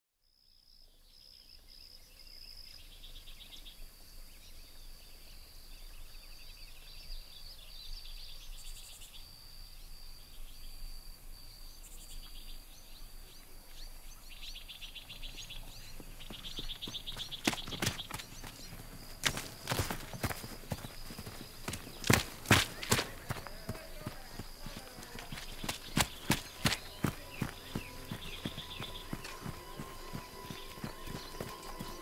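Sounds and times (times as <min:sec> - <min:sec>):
high insect drone: 0:01.6 - 0:32.0
rapid trilling chirps: 0:14.6 - 0:32.0.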